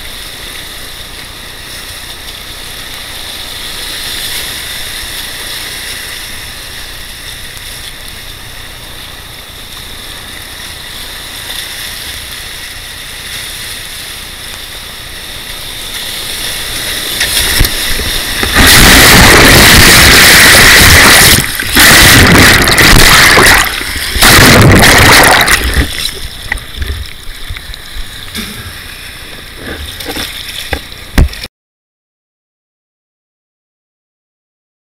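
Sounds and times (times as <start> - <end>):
whitewater rushing: 15.4 - 31.5
water crashing over microphone: 15.8 - 28.5.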